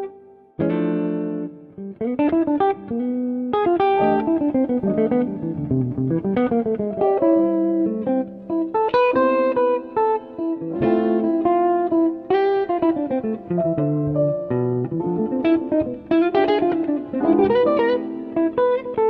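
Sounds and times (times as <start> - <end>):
plucked instrumental music: 0.0 - 19.0.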